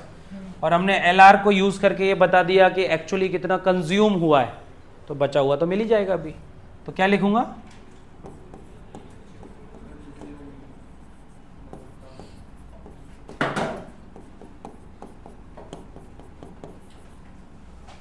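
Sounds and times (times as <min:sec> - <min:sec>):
writing tool scraping on board: 0:08.2 - 0:17.2.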